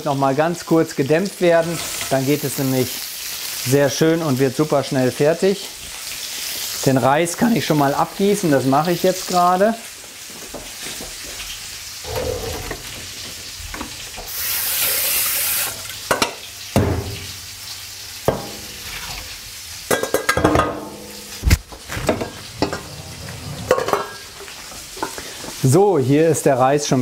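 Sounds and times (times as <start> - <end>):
fish sizzling in a pan: 0.1 - 22.6, 23.7 - 26.2
pots and utensils clattering: 1.6 - 2.4, 15.8 - 17.3, 18.3 - 25.6.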